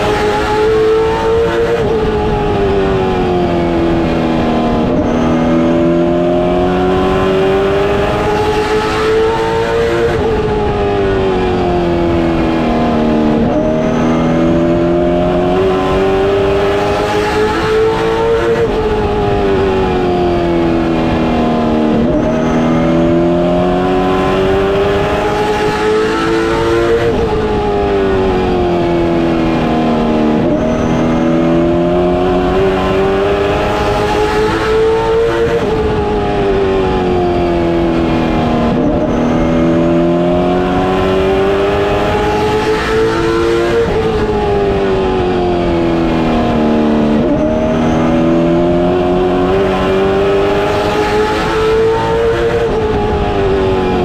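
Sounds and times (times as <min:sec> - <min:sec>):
race car engine revving: 0:00.0 - 0:54.0
road and wind noise: 0:00.0 - 0:54.0.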